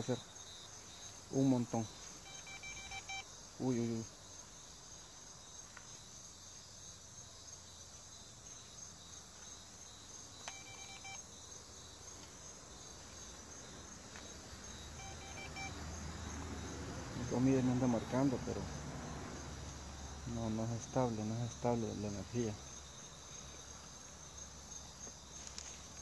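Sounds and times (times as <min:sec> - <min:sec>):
crickets chirping: 0:00.0 - 0:26.0
short electronic beep: 0:02.3 - 0:03.2, 0:10.5 - 0:11.2, 0:15.0 - 0:15.8.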